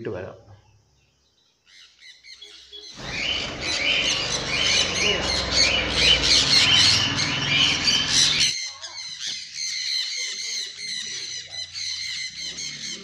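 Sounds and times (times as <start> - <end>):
parrots calling: 3.0 - 13.0.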